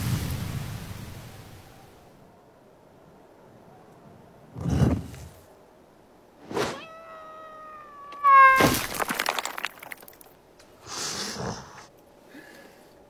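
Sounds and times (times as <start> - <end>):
crash with clattering debris: 8.5 - 10.4.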